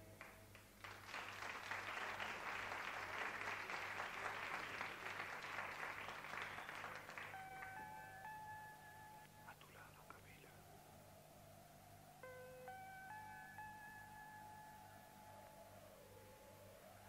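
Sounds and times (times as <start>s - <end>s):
audience applauding: 0.2s - 8.4s.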